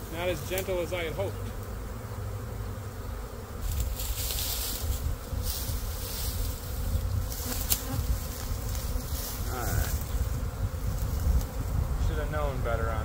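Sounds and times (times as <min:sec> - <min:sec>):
bee swarm buzzing: 0:00.0 - 0:13.0
dry leaves rustling: 0:03.6 - 0:11.4.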